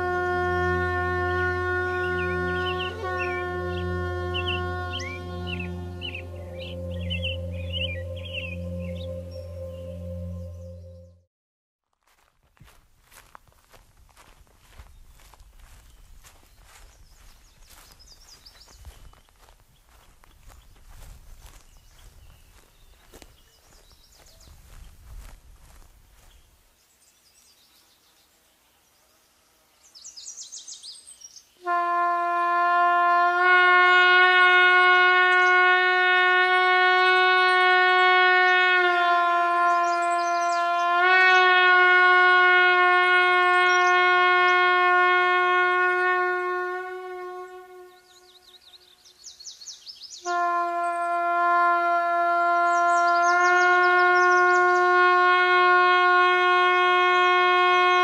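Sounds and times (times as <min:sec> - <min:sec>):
long horn notes: 0:00.0 - 0:11.3, 0:31.6 - 0:48.9, 0:50.2 - 0:58.0
bird chirps: 0:02.0 - 0:11.2, 0:14.7 - 0:25.0, 0:39.7 - 0:40.9, 0:47.5 - 0:51.2, 0:52.6 - 0:54.9.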